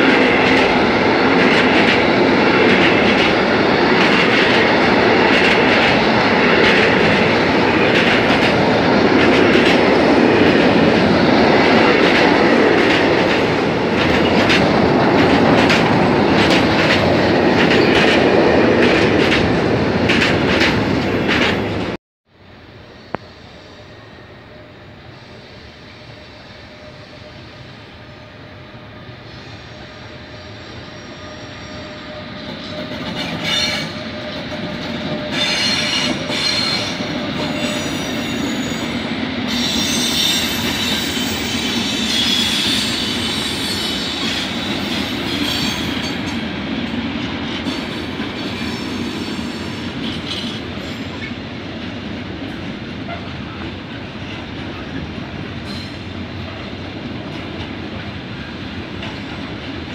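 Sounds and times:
freight train rumbling past: 0:00.0 - 0:59.9
high-pitched wheel squeal: 0:29.3 - 0:34.3.

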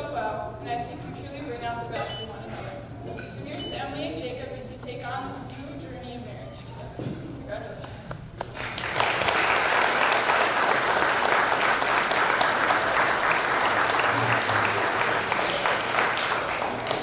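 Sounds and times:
people applauding: 0:08.4 - 0:17.0.

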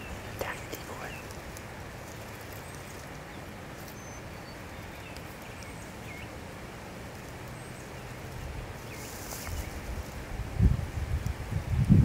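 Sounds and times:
small birds chirping: 0:00.0 - 0:10.2.

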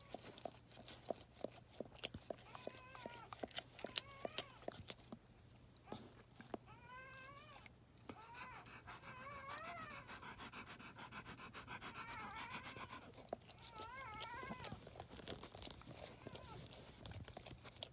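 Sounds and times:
dog licking with wet clicks: 0:00.0 - 0:17.9
puppy squealing: 0:02.3 - 0:04.8, 0:06.7 - 0:10.3, 0:11.0 - 0:17.1.

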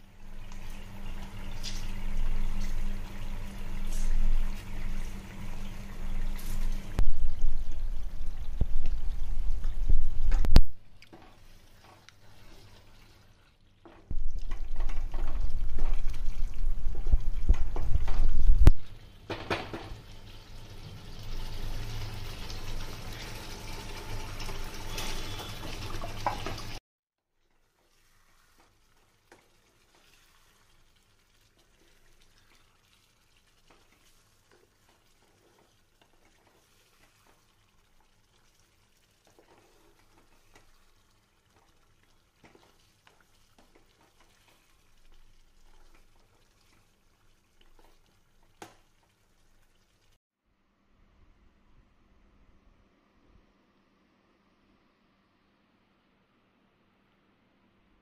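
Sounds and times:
liquid hissing and bubbling: 0:00.1 - 0:13.5, 0:14.1 - 0:18.7
cooking pot rumbling: 0:02.1 - 0:10.6, 0:13.9 - 0:26.8.

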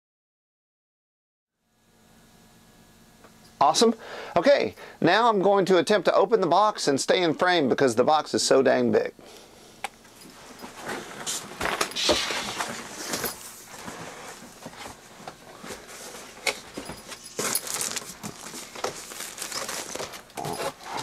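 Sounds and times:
cardboard rustling and scraping: 0:10.5 - 0:21.0.

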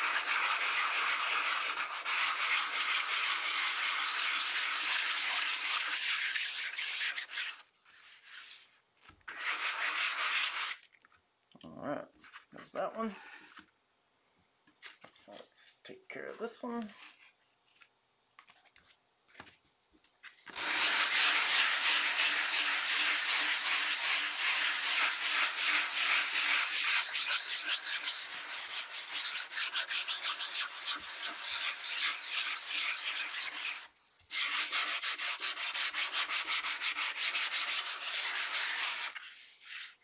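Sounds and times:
sandpaper rubbing on paper: 0:00.0 - 0:08.7, 0:09.3 - 0:10.8, 0:20.5 - 0:40.0.

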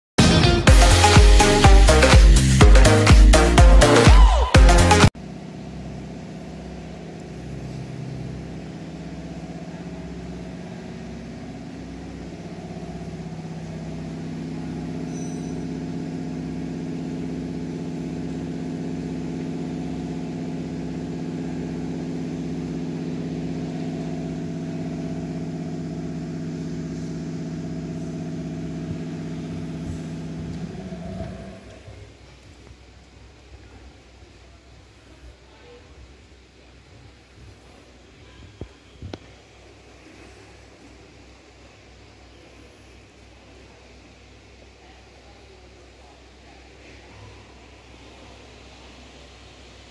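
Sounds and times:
machine drone: 0:00.2 - 0:32.2.

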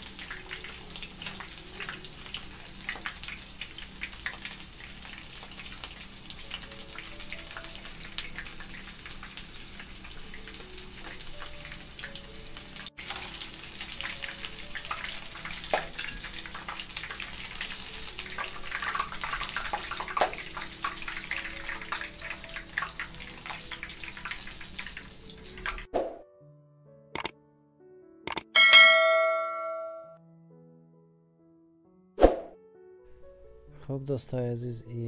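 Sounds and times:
shrimp deep-frying in oil: 0:00.0 - 0:25.9.

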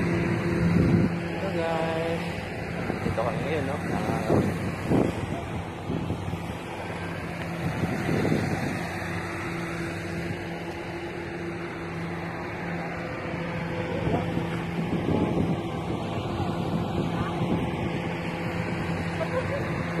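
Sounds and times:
low engine drone: 0:00.0 - 0:20.0
wind rushing: 0:02.4 - 0:10.5.

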